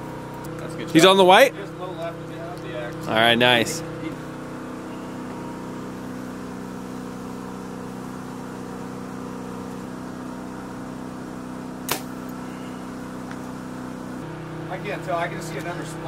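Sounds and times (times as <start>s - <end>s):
steady low hum: 0.0s - 16.0s
bow shot crack: 11.9s - 12.3s.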